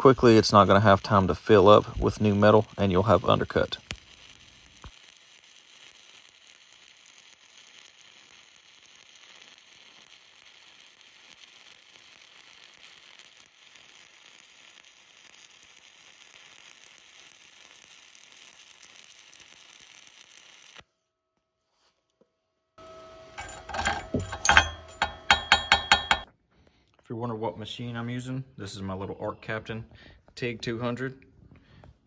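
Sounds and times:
welding arc sizzling: 0.0s - 20.8s, 22.8s - 26.3s.

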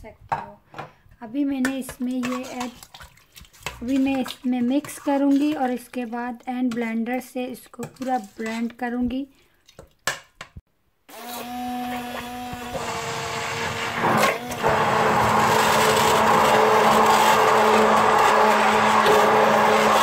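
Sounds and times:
hand blender motor humming: 11.1s - 20.0s.

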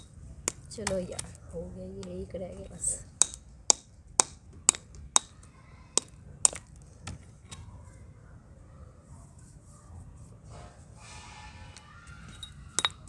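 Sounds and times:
clay shard cracking: 2.0s - 5.4s, 6.0s - 7.6s, 12.3s - 13.0s.

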